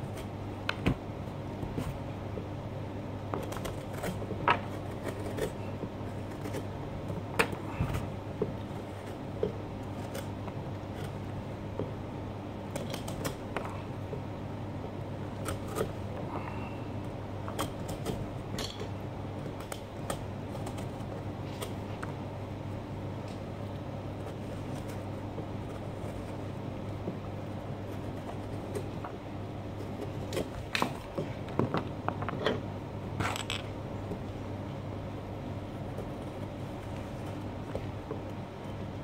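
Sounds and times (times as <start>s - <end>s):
steady low hum: 0.0s - 39.0s
knife scraping pumpkin rind: 3.4s - 11.2s.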